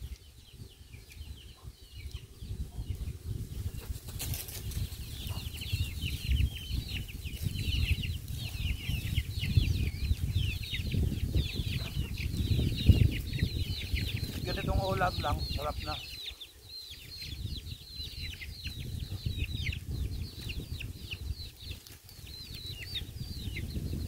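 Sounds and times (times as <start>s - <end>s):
wind buffeting microphone: 0.0s - 24.0s
high bird chirps: 4.8s - 24.0s.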